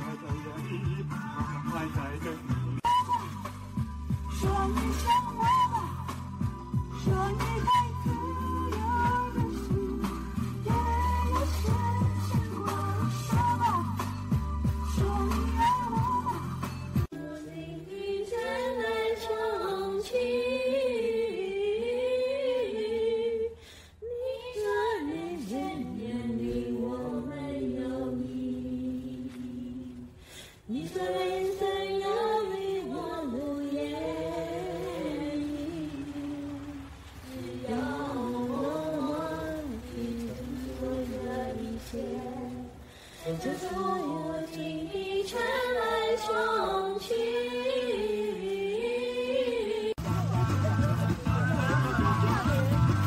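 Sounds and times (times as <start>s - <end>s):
backing music from speaker: 0.0s - 19.9s, 49.7s - 53.0s
girl singing karaoke: 4.1s - 50.0s
high voice singing unaccompanied: 24.1s - 53.0s.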